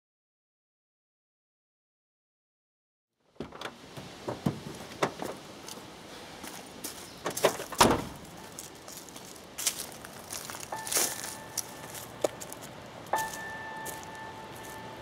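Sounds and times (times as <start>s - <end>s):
car door opening: 3.4s - 5.4s, 7.2s - 8.2s
car door slamming: 3.4s - 5.4s, 7.3s - 8.2s
knocks and clicks: 3.4s - 5.4s
footsteps on gravel: 4.3s - 15.0s.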